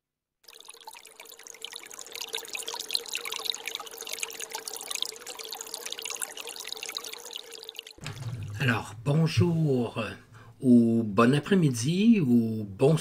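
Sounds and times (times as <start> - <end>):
water trickling: 0.4 - 10.5.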